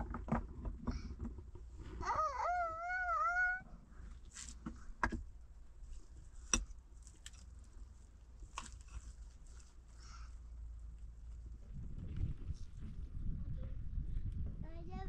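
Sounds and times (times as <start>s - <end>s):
animal wavering call: 2.0s - 3.7s.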